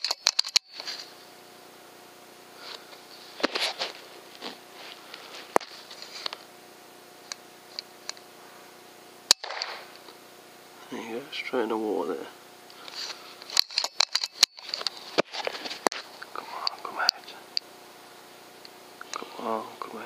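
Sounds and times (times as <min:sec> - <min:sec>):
rustling and handling clicks: 0:00.0 - 0:01.1, 0:12.8 - 0:16.8
air rifle shot: 0:09.3 - 0:10.0.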